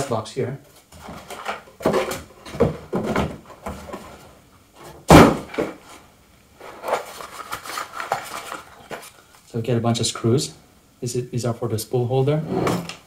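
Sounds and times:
cardboard scraping and rustling: 6.6 - 9.2.

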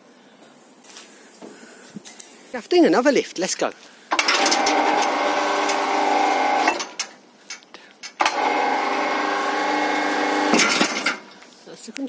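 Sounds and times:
hoist motor humming whine: 4.1 - 7.0, 8.2 - 11.3.

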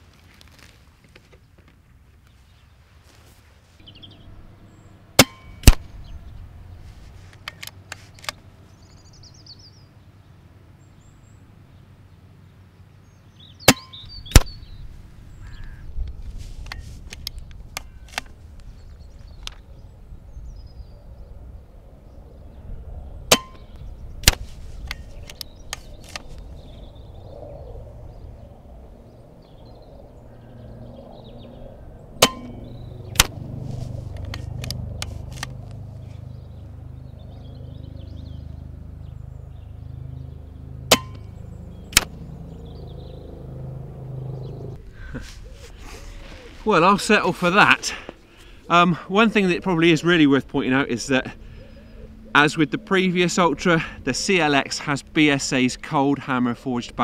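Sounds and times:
wind rumble on microphone: 3.8 - 7.4, 14.0 - 40.4
sharp crack: 5.2 - 6.1, 13.7 - 14.7, 23.2 - 26.4, 32.2 - 33.5, 40.9 - 42.2
air rifle shots: 5.2 - 6.2, 13.7 - 14.7, 23.3 - 25.0, 32.2 - 33.5, 40.9 - 41.3.

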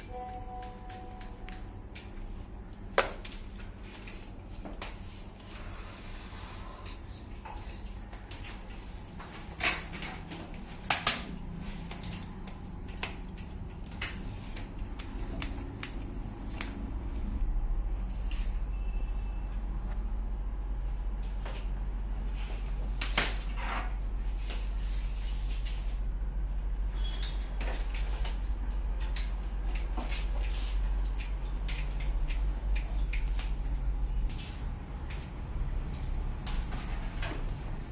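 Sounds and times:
steady low hum: 0.0 - 33.2
scissors snipping hair: 0.1 - 2.0, 11.9 - 17.0, 29.1 - 33.5
low hum: 11.3 - 22.9.

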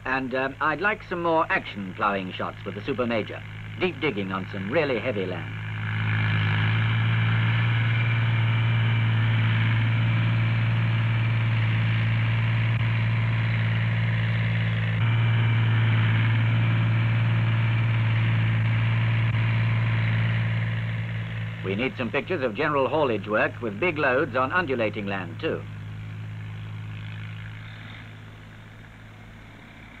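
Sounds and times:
tractor engine under load: 0.0 - 30.0.

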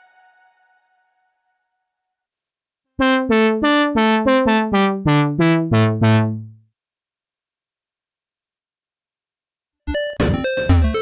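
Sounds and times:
synthesizer brass notes stepping down: 3.0 - 6.6.

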